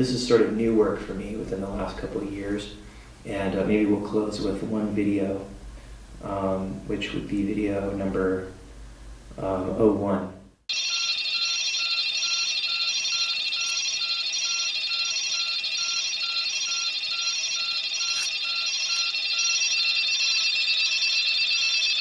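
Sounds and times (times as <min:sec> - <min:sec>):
high electronic tones and chirps: 0:11.0 - 0:20.5.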